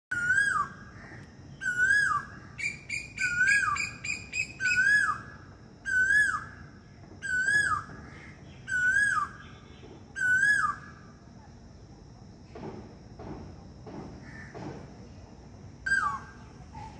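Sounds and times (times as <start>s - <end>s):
cuckoo calling: 0.1s - 0.9s, 1.6s - 6.6s, 7.2s - 11.0s, 15.8s - 16.9s.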